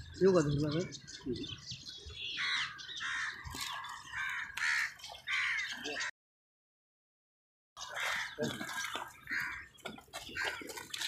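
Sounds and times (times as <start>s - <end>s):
crows cawing: 2.3s - 6.1s, 7.8s - 10.8s.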